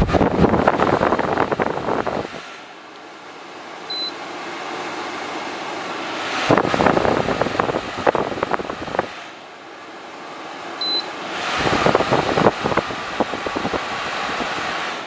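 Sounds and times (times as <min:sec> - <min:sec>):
dehumidifier fan blowing air: 0:00.0 - 0:15.0
short beep: 0:03.9 - 0:04.2, 0:10.8 - 0:11.1.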